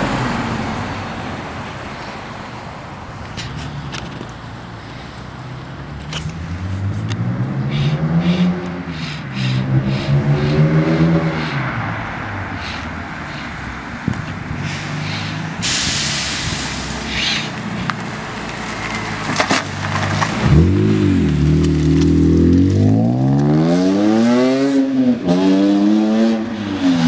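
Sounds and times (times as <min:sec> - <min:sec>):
car engine accelerating: 0:05.5 - 0:27.0.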